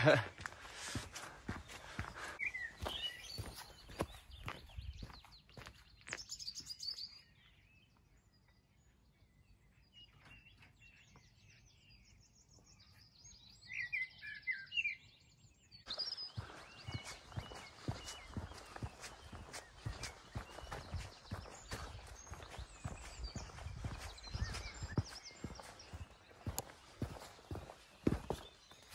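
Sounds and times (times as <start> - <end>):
footsteps on dirt path: 0.0 - 7.0, 15.9 - 28.9
small birds chirping: 0.0 - 28.9.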